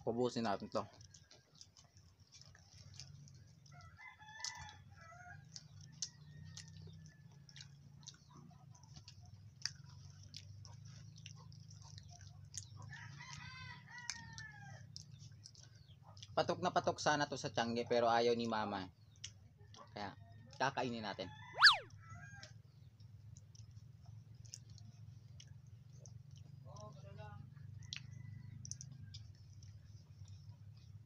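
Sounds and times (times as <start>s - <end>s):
rooster crowing: 21.4s - 21.8s.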